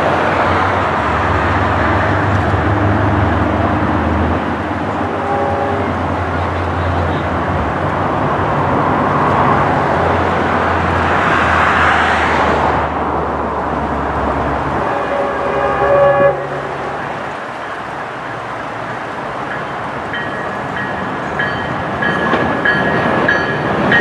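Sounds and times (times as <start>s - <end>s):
road traffic noise: 0.0s - 24.0s
vehicle horn chord: 5.1s - 6.0s, 14.8s - 17.2s.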